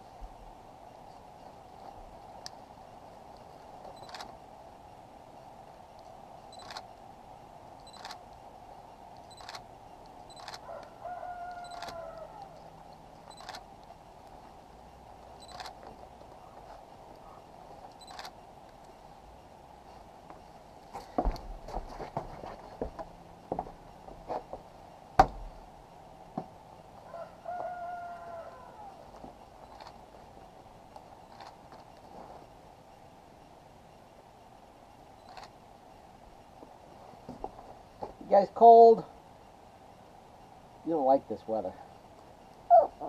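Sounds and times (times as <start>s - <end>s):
puppy whining: 42.7s - 43.0s.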